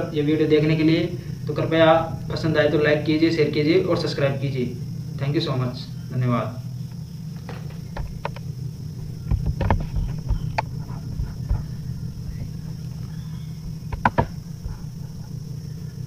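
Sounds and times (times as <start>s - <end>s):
low electrical hum: 0.0s - 16.0s
short clicks and knocks: 13.9s - 14.8s.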